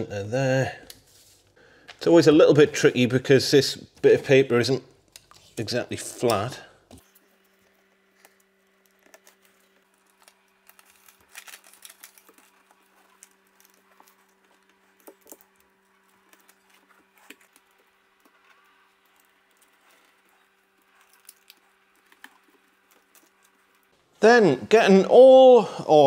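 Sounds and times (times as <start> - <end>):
paper rustling: 7.0 - 24.0.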